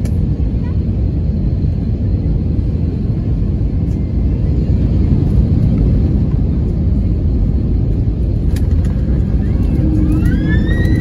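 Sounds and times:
aircraft engines rumbling: 0.0 - 11.0.

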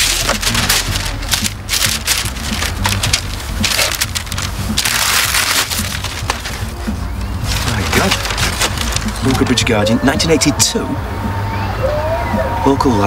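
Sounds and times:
wrapping paper tearing and crumpling: 0.0 - 9.6.

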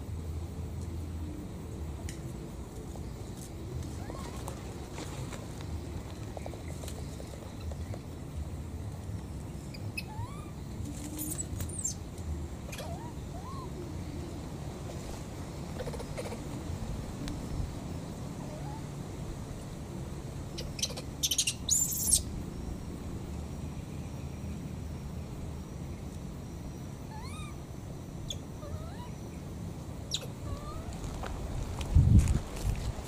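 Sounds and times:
baby monkeys squeaking: 4.0 - 4.4, 9.7 - 10.6, 11.2 - 12.0, 12.7 - 13.7, 15.8 - 16.4, 20.6 - 22.3, 27.1 - 27.6, 30.1 - 31.0.

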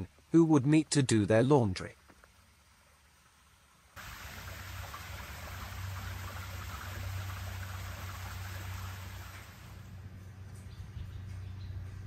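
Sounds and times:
low steady rumble: 3.5 - 12.0
water trickling over stone: 4.0 - 9.8.

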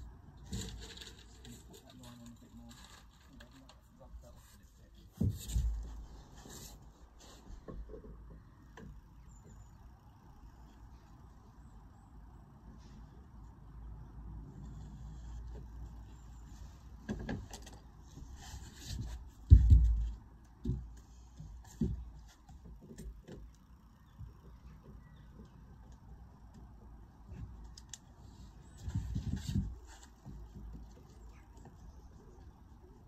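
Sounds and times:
rustling: 0.0 - 8.5, 14.5 - 23.7, 27.0 - 33.0
lead sheet knocking and bumping: 18.5 - 23.4.

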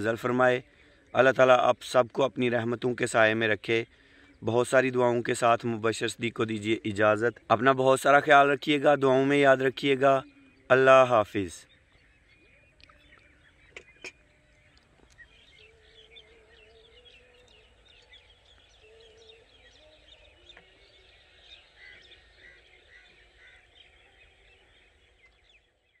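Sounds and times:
small birds chirping: 0.0 - 26.0
wavering drawn-out bird call: 12.4 - 24.8.

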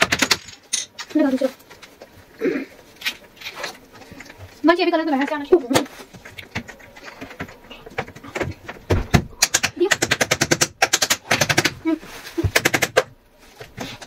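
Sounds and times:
plastic panels clicking and clattering: 5.1 - 14.0.

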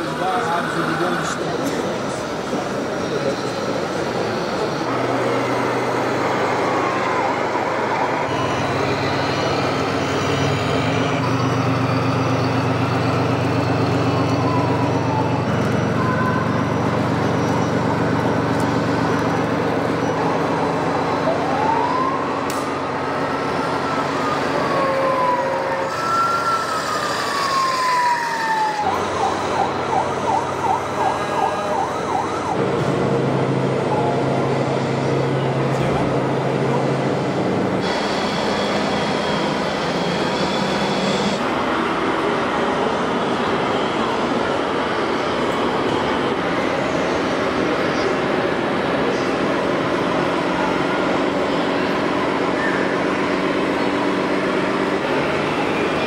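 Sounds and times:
vehicle siren wailing: 4.6 - 32.8.

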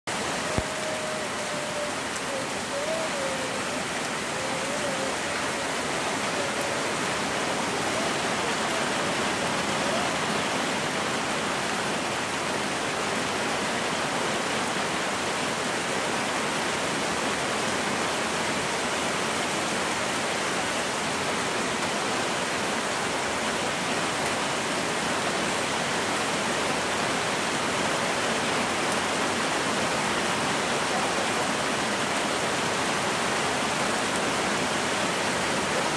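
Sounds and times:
heavy rain pouring: 0.0 - 35.9.

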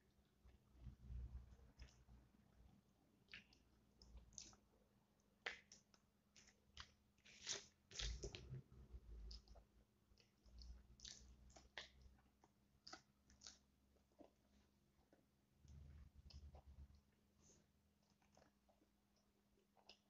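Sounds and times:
chewing and crunching: 5.4 - 17.0, 18.0 - 20.0.

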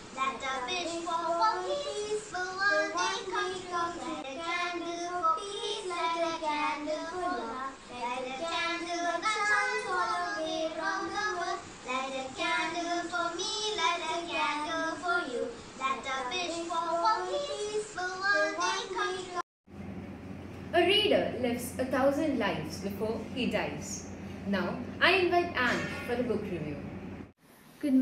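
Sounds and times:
girls singing together: 0.3 - 19.4.

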